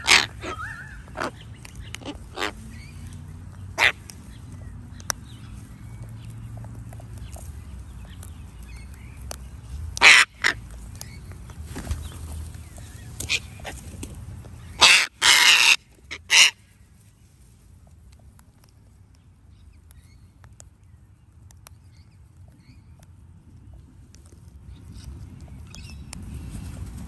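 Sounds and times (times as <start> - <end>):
cockatoos screeching: 0.0 - 1.4, 2.0 - 2.6, 3.8 - 4.0, 10.0 - 10.6, 14.8 - 16.6.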